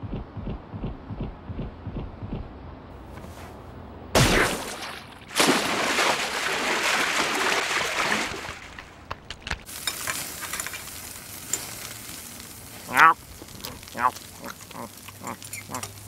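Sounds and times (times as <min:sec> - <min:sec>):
crackle with small ticks: 0:09.1 - 0:16.0
loud sizzling hiss: 0:09.6 - 0:16.0.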